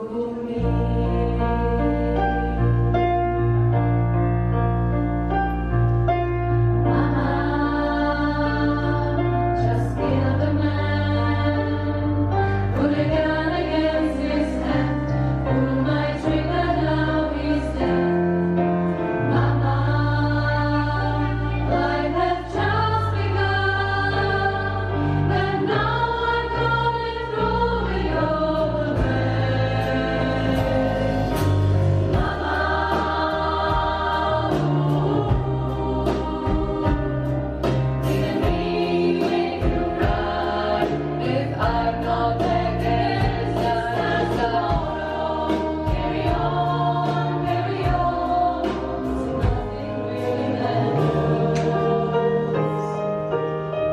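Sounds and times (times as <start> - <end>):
women's choir singing: 0.0 - 3.3, 6.8 - 53.1
keyboard: 0.0 - 53.9
bass line: 17.9 - 52.4.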